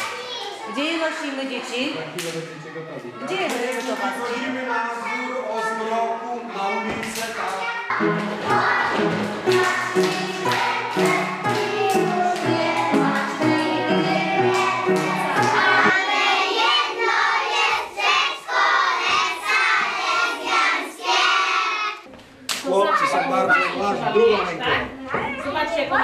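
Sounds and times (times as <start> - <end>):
musical accompaniment: 7.9 - 15.9
children singing: 7.9 - 22.0.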